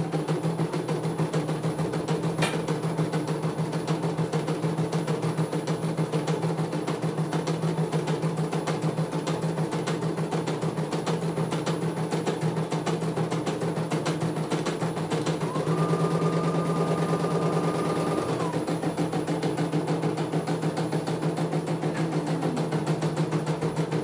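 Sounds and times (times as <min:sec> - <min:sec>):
steady motor hum: 0:14.3 - 0:24.0.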